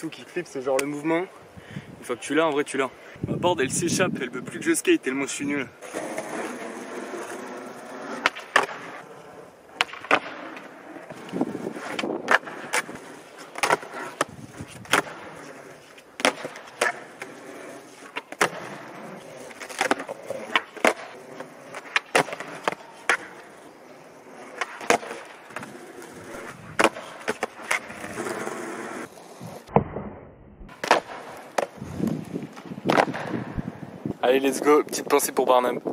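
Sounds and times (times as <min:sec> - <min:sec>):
skateboard wheels rolling on asphalt: 0:00.0 - 0:35.9
skateboard wooden clacks: 0:08.2 - 0:09.0, 0:09.7 - 0:18.8, 0:24.5 - 0:30.0, 0:30.7 - 0:33.6.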